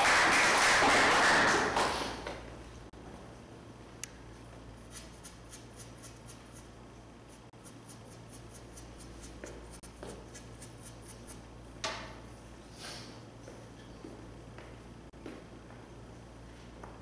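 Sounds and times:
chalk scraping cue tip: 0:04.9 - 0:11.5.

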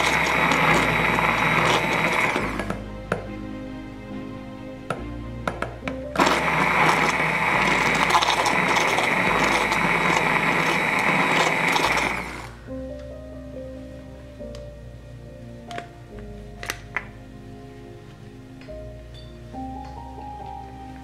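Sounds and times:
blender clicks: 0:00.0 - 0:02.7, 0:06.2 - 0:12.5
immersion blender running: 0:00.0 - 0:02.8, 0:06.2 - 0:12.6.

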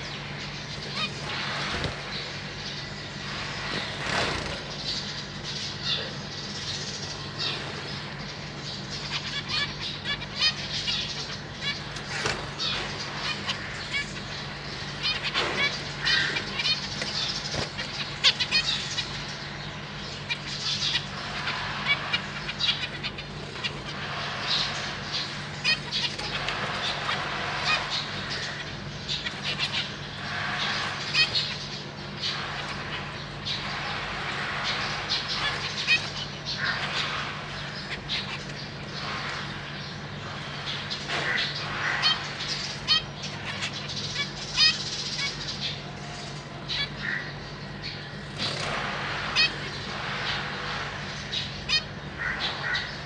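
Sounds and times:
finches chirping: 0:00.0 - 0:53.0
steady low hum: 0:00.0 - 0:53.0
wing fluttering in cage: 0:00.9 - 0:05.1, 0:11.7 - 0:14.0, 0:48.1 - 0:51.3.

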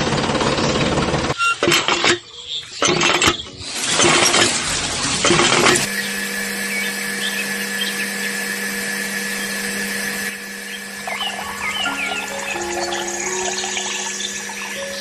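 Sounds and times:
faint chirps: 0:10.8 - 0:15.0.

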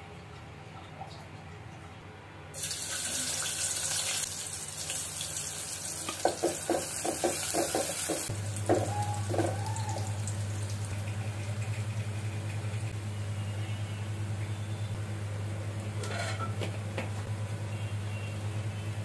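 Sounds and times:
onions sizzling in hot oil: 0:02.6 - 0:11.1
low steady hum: 0:08.3 - 0:19.0
wooden spatula scraping pot: 0:16.0 - 0:16.6.

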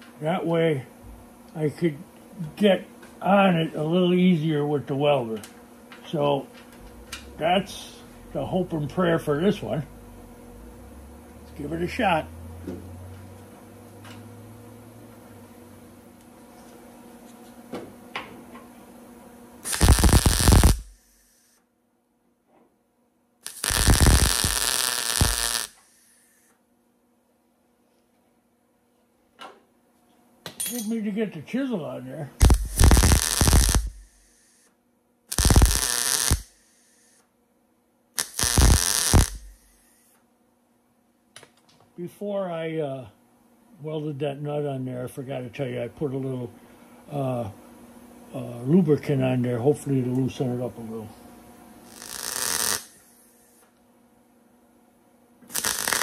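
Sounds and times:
welder arc crackle: 0:19.6 - 0:21.6, 0:23.4 - 0:26.5, 0:32.4 - 0:34.7, 0:35.3 - 0:37.3, 0:38.2 - 0:40.2, 0:51.8 - 0:53.8, 0:55.5 - 0:56.0.

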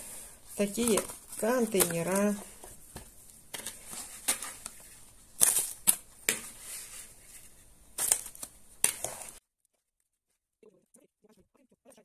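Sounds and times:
plastic container crinkling: 0:00.6 - 0:06.5.

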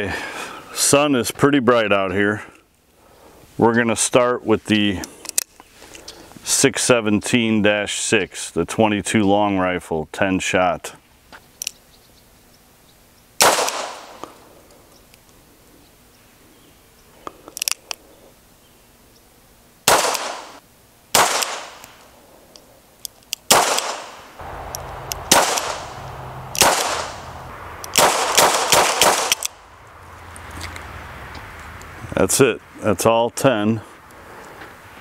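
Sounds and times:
revolver shots: 0:23.5 - 0:29.6.

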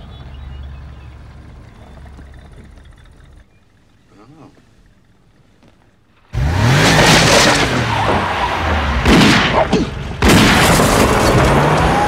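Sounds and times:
tyres skidding on dirt: 0:00.0 - 0:12.0
car engine revving: 0:06.2 - 0:12.0
gunshots: 0:09.0 - 0:11.3.

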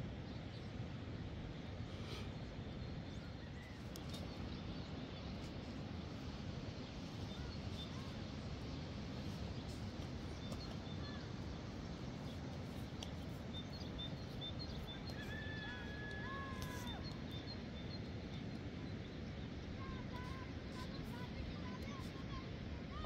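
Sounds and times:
low rushing background noise: 0:00.0 - 0:23.0
faint bird chirps: 0:06.8 - 0:23.0.

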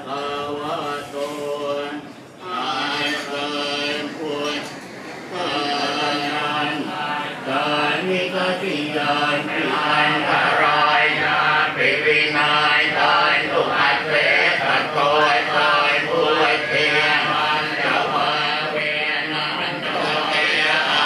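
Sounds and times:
monks chanting in unison: 0:00.0 - 0:21.0.

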